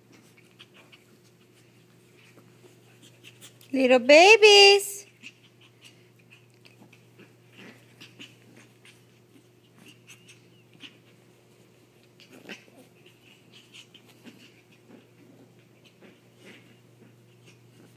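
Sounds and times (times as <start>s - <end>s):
paws scuffling on fabric: 0.0s - 3.7s
dogs breathing and huffing: 0.0s - 3.8s, 5.0s - 17.9s.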